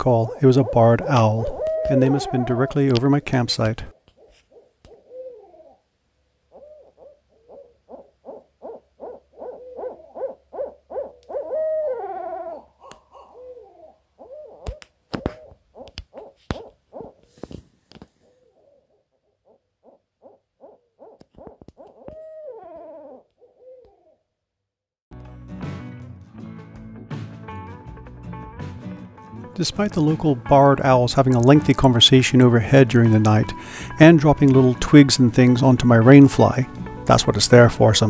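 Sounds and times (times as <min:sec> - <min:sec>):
owls hooting: 0:00.0 - 0:05.9, 0:06.5 - 0:17.3, 0:18.2 - 0:24.2.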